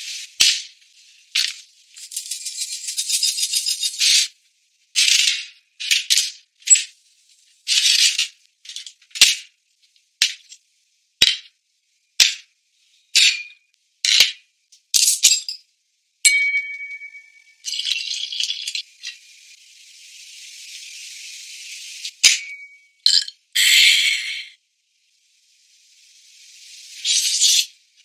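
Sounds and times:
shaker percussion: 0.0s - 4.3s.

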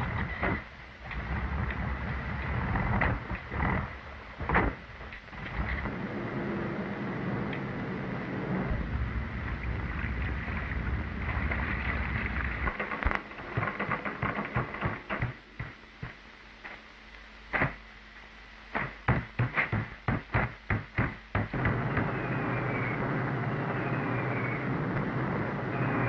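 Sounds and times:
steady rumbling noise: 0.0s - 26.0s
sharp knocks and bangs: 11.4s - 16.8s, 17.5s - 17.8s, 18.7s - 22.3s.

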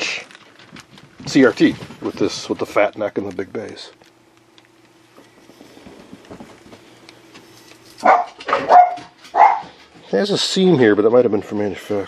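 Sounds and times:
plastic packing crinkling: 0.0s - 8.3s
faint steady hum: 0.0s - 12.0s
dog barking: 8.0s - 9.7s.

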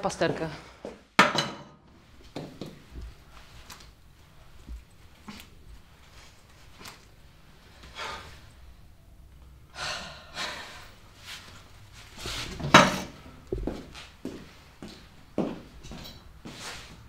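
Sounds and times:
person breathing heavily and gasping: 7.8s - 8.5s, 9.7s - 11.0s.

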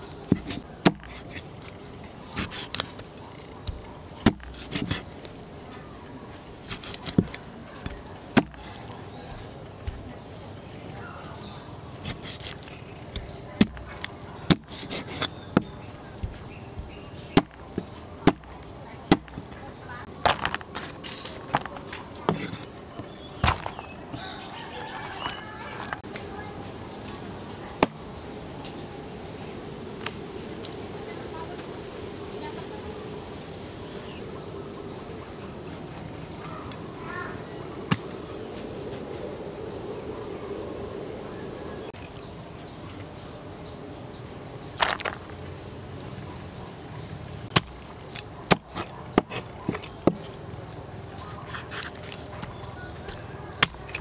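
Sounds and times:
knife chopping on wooden board: 0.3s - 1.5s, 3.7s - 5.1s, 6.7s - 10.1s, 12.0s - 19.5s.

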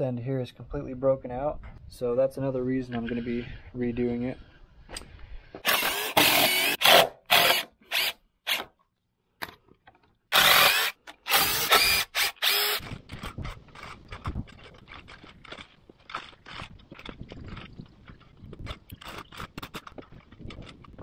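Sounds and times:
impact driver bursts: 5.6s - 8.7s, 10.3s - 13.0s.

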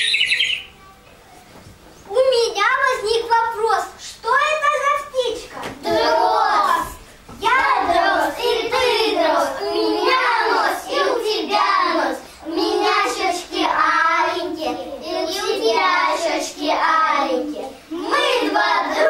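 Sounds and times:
children singing: 5.7s - 19.0s.

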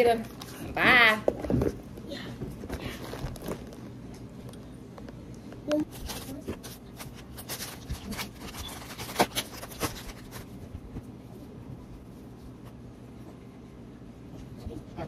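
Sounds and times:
plastic wipes pack crinkling: 5.9s - 10.6s.

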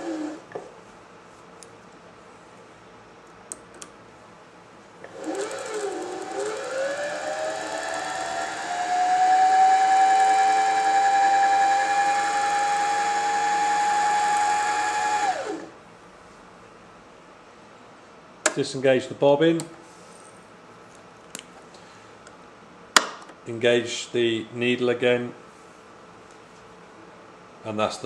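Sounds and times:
sewing machine motor whine: 0.0s - 0.4s, 5.1s - 15.8s.

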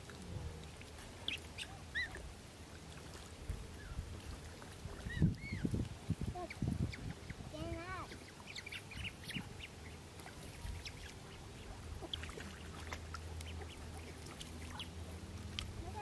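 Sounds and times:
ducks splashing in water: 0.0s - 16.0s
low steady hum: 0.0s - 16.0s.

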